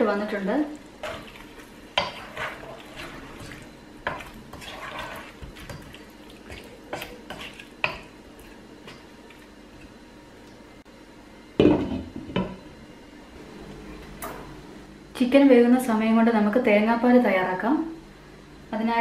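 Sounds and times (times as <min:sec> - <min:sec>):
spatula stirring thick curry: 0:00.8 - 0:09.4.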